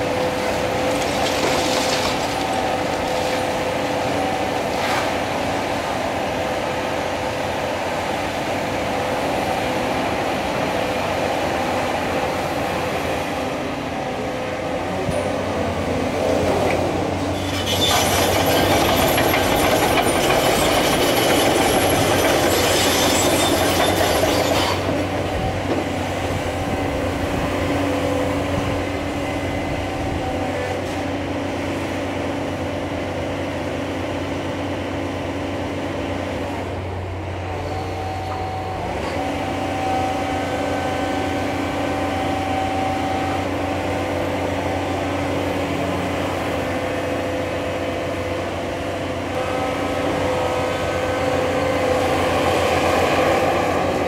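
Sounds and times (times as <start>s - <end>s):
excavator diesel engine running: 0.0s - 54.0s
steel track links clanking: 17.3s - 25.0s.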